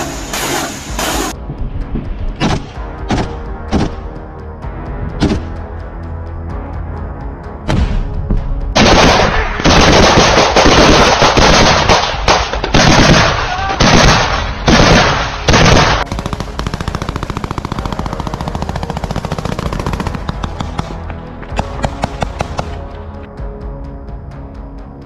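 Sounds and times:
automatic gunfire: 8.8 - 21.0.

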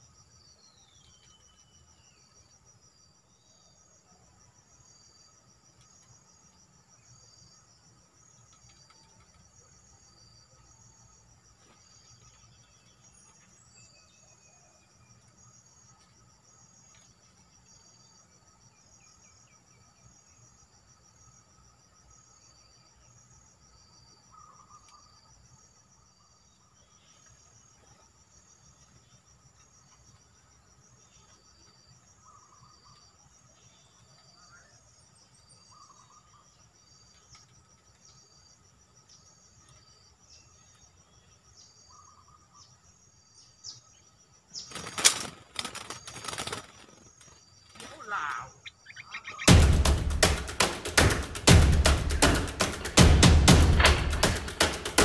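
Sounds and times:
insect chorus trilling: 0.0 - 55.0
faint bird notes: 47.7 - 51.3.

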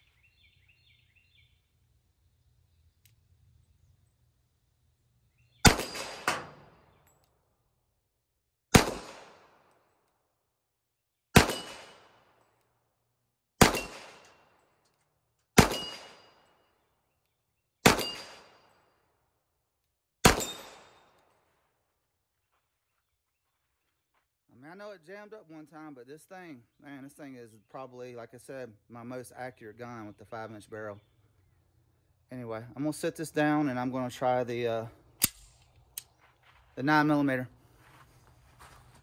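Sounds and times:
pistol shots: 5.6 - 7.0, 8.7 - 9.8, 11.3 - 12.6, 13.6 - 14.7, 15.5 - 16.6, 17.8 - 18.8, 20.2 - 21.3
steel target plate ringing: 15.7 - 16.3.

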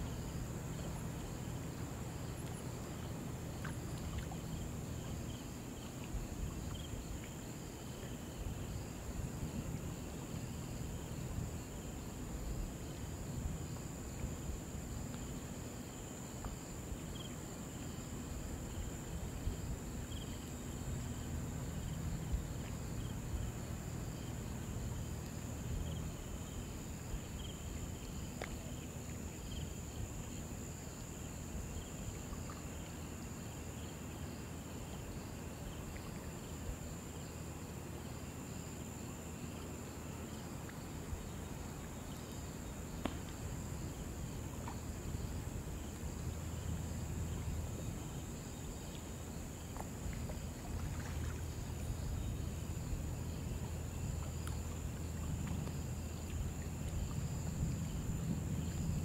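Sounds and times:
low steady rumble: 0.0 - 36.8, 41.0 - 59.0
rhythmic insect chirping: 50.7 - 55.2.

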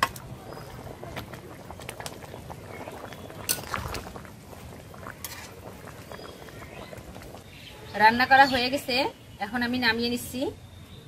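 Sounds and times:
curry simmering and bubbling: 0.0 - 9.4
metal spatula scraping pan: 5.2 - 5.6.

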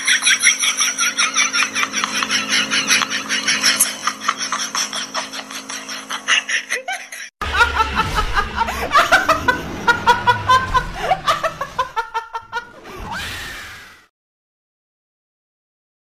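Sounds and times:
woman laughing loudly: 0.0 - 12.8
steady hum: 7.4 - 12.7.

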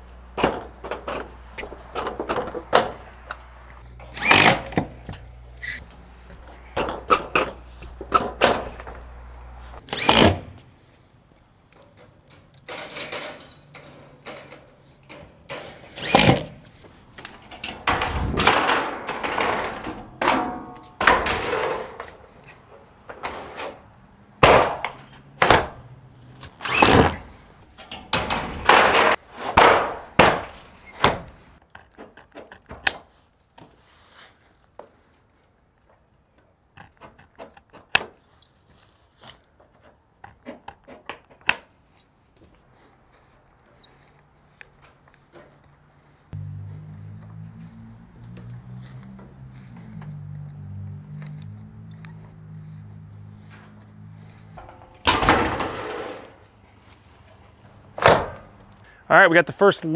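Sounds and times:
metal roof panels thunking: 17.4 - 22.2, 26.8 - 31.4, 54.6 - 56.4.

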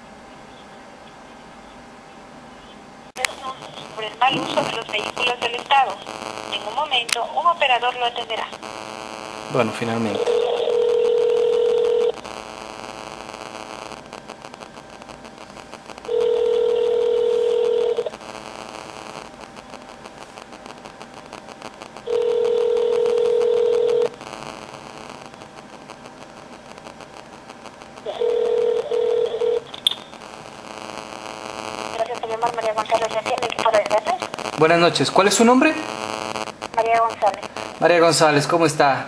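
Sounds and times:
phone ringing tone: 10.0 - 12.2, 16.1 - 18.1, 22.0 - 24.2, 28.0 - 30.0.

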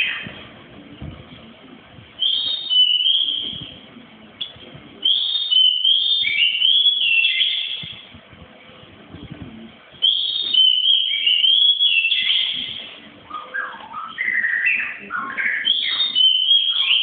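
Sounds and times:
bird singing whistled notes: 2.2 - 3.7, 4.4 - 8.0, 10.0 - 17.0.

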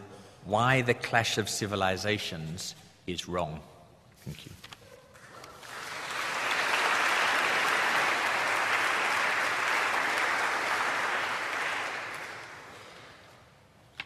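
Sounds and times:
audience applauding: 5.2 - 13.2.

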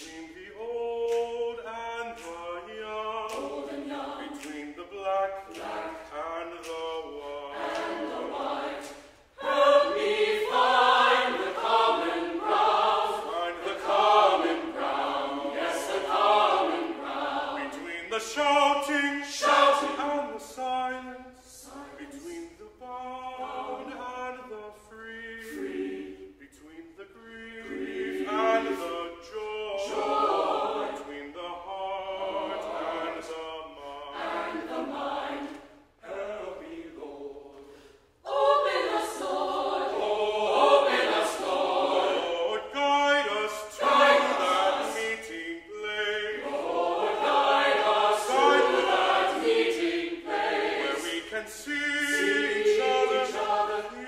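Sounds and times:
baritone soloist singing: 0.0 - 7.6, 17.6 - 30.2, 42.0 - 49.5, 50.8 - 54.0
choir singing: 0.0 - 54.0.

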